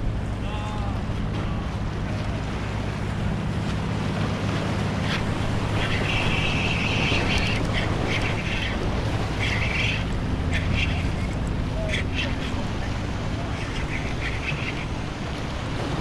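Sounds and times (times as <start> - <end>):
boat engine humming: 0.0 - 16.0
waves washing over rocks: 0.0 - 16.0
wind buffeting microphone: 0.0 - 16.0.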